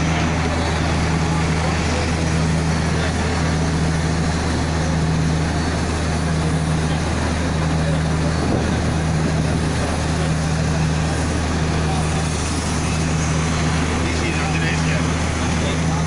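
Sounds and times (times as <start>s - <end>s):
constant noisy haze: 0.0s - 16.0s
low mechanical hum: 0.0s - 16.0s.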